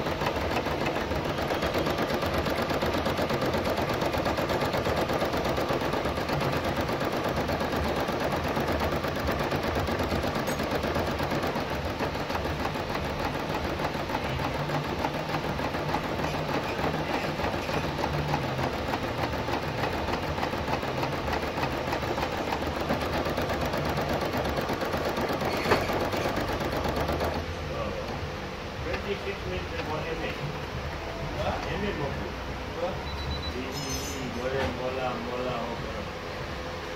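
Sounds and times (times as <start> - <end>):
embroidery machine stitching: 0.0 - 28.2.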